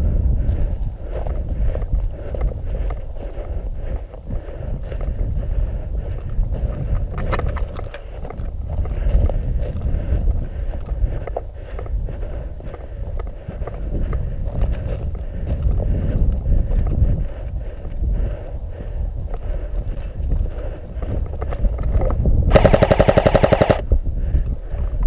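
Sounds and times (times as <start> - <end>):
footsteps through dry grass: 0.0 - 23.6
wind rumble on microphone: 0.0 - 25.0
gear rustling and knocking: 6.2 - 10.0.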